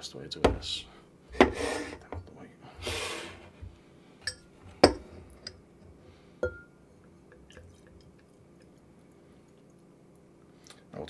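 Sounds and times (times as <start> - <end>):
glass and bottle knocking on table: 4.3 - 5.0, 6.4 - 6.7.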